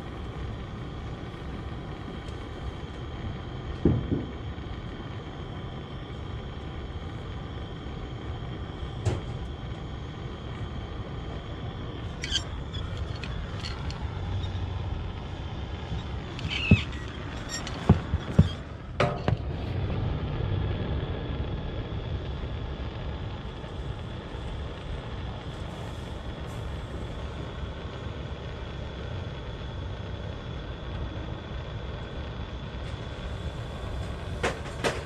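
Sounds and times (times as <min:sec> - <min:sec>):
steady low rumble: 0:00.0 - 0:35.0
soldering copper tapping metal: 0:06.5 - 0:19.5.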